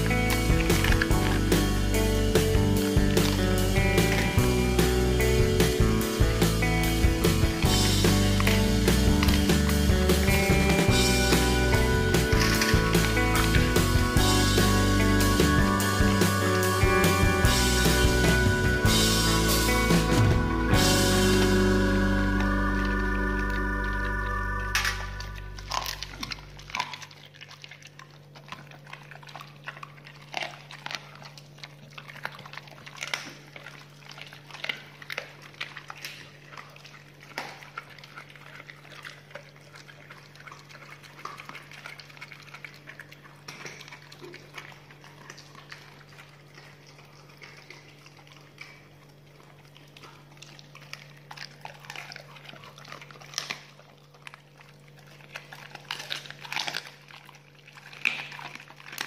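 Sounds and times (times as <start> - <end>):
steady low hum: 0.0 - 32.0
dogs chewing and crunching: 0.0 - 59.0.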